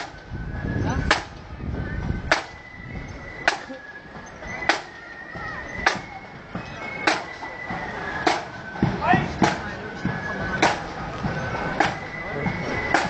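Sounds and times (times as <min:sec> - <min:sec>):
marching band drum hits: 0:08.2 - 0:11.0.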